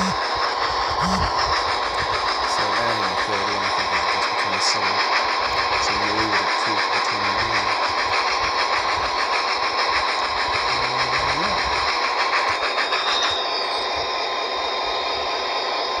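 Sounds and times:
diesel engine running: 0:00.0 - 0:13.4
steam locomotive chuffing: 0:00.0 - 0:16.0.

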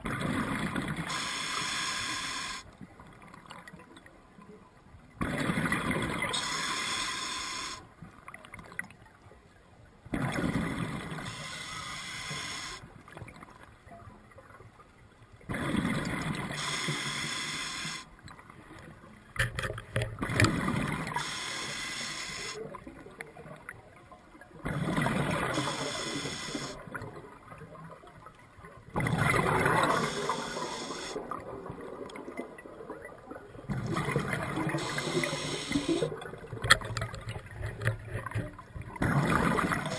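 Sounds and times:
diver breathing: 0:01.1 - 0:02.7, 0:06.3 - 0:07.8, 0:11.3 - 0:12.8, 0:16.6 - 0:18.1, 0:21.2 - 0:22.6, 0:25.4 - 0:26.8, 0:29.8 - 0:31.2, 0:34.6 - 0:36.2.

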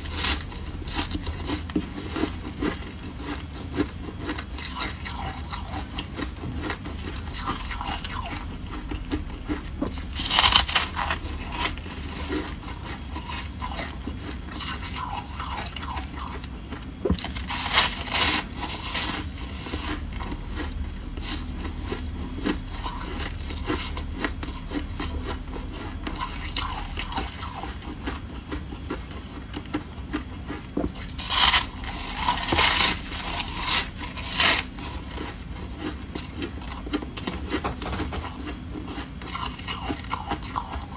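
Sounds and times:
quiet rustling and chewing: 0:00.0 - 0:40.9
crunching bites of frost: 0:10.0 - 0:13.6.

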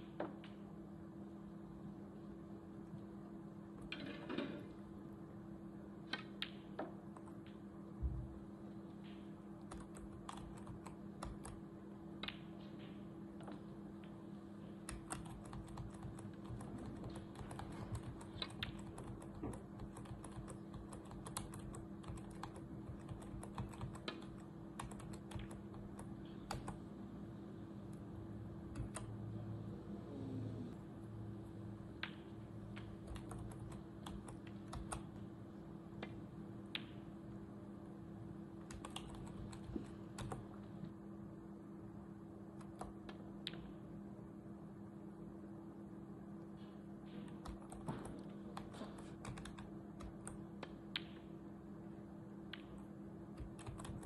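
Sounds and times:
steady low hum: 0:00.0 - 0:54.0
computer keyboard typing: 0:09.6 - 0:11.6, 0:14.8 - 0:26.8, 0:28.6 - 0:29.2, 0:32.7 - 0:35.2, 0:38.6 - 0:40.6, 0:42.6 - 0:43.6, 0:47.2 - 0:51.2, 0:53.4 - 0:54.0.

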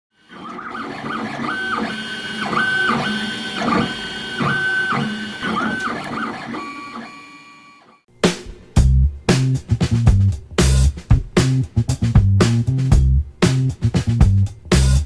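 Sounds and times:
stepper motors whining: 0:00.2 - 0:08.0.

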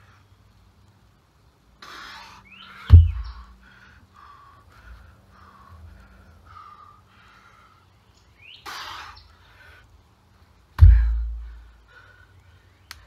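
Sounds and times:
birds chirping: 0:00.4 - 0:13.0
heavy weight thudding on ground: 0:02.9 - 0:03.5, 0:10.8 - 0:11.6.

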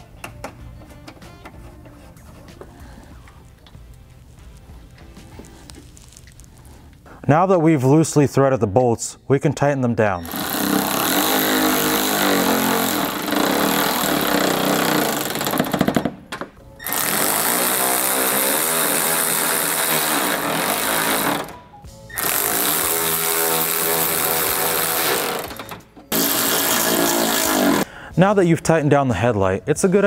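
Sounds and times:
cordless ratchet running: 0:22.2 - 0:27.8.

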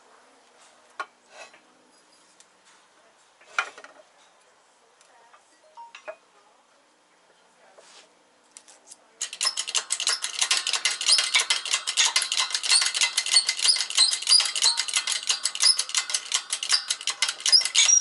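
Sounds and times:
high squeaks: 0:09.2 - 0:18.0.

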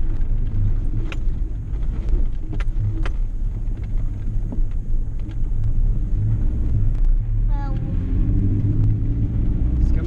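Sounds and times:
truck engine and tyre rumble: 0:00.0 - 0:10.0.

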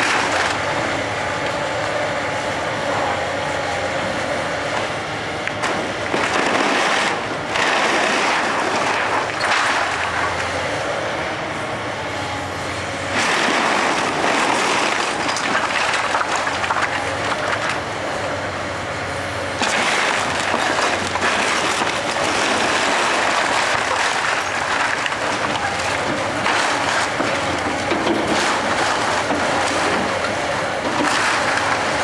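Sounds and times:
wood and brick breaking: 0:00.0 - 0:00.7, 0:05.5 - 0:10.5, 0:13.1 - 0:17.8, 0:19.6 - 0:32.0
excavator diesel engine running: 0:00.0 - 0:32.0.

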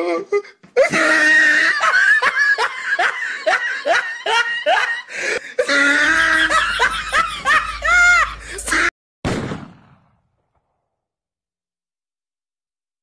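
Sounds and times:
person laughing hard: 0:00.8 - 0:08.9.

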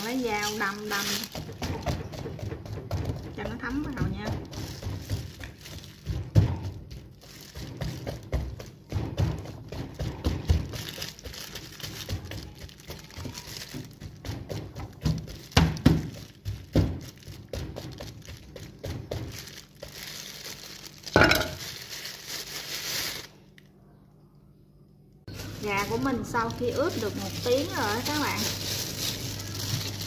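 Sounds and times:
crinkling rustle: 0:00.0 - 0:01.7, 0:04.4 - 0:08.8, 0:10.4 - 0:23.7, 0:25.3 - 0:30.0.

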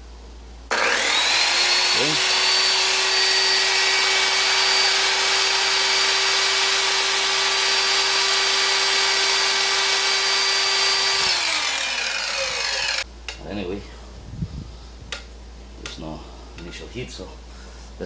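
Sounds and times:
circular saw whining: 0:00.7 - 0:13.0.

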